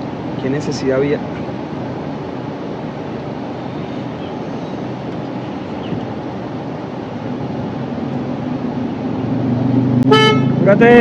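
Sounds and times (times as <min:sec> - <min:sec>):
car engine idling: 0:00.0 - 0:11.0
ventilation fan blowing: 0:00.0 - 0:11.0.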